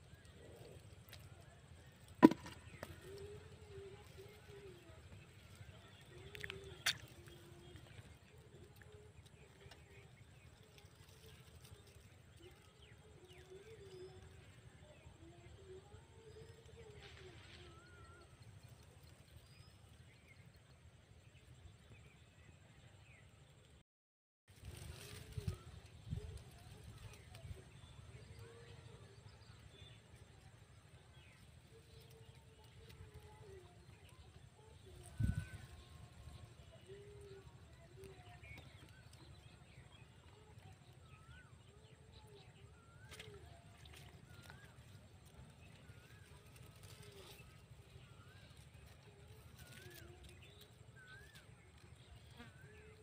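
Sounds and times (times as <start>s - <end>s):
faint bird chirps: 24.7s - 53.0s.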